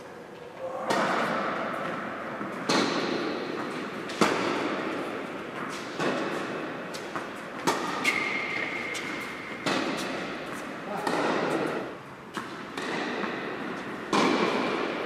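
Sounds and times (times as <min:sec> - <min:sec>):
tennis ball struck by rackets: 0:00.9 - 0:15.0.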